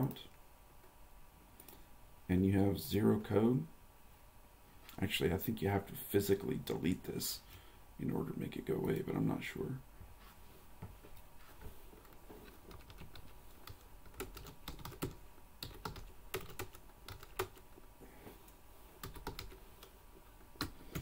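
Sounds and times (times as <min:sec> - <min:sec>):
computer keyboard typing: 0:12.0 - 0:17.8, 0:19.0 - 0:20.0, 0:20.6 - 0:21.0.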